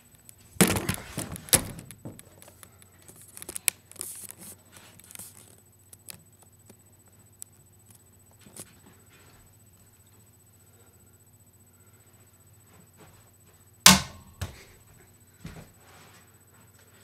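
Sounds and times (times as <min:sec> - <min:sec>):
sharp knock: 0:13.9 - 0:14.5.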